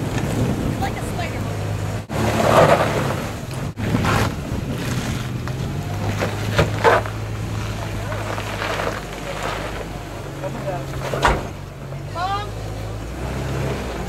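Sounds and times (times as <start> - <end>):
wind buffeting microphone: 0.0 - 9.2
engine running at low revs: 0.0 - 14.0.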